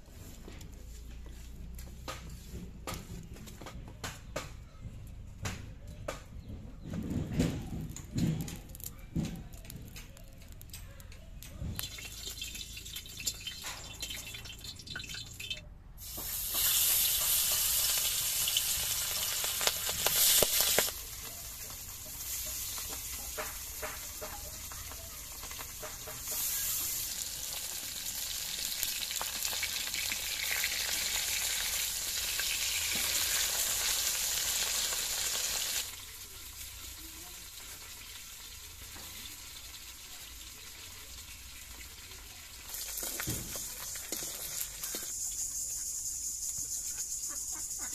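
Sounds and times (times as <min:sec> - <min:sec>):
fish sizzling in hot oil: 0:11.8 - 0:46.6.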